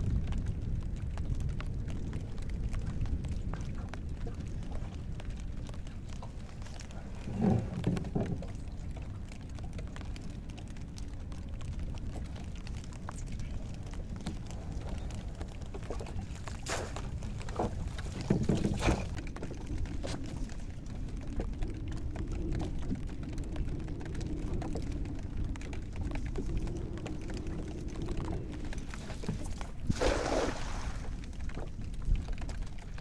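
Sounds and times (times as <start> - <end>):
water noise: 0.0 - 33.0
wind: 0.0 - 33.0
weighted net splashing into water: 29.8 - 31.2.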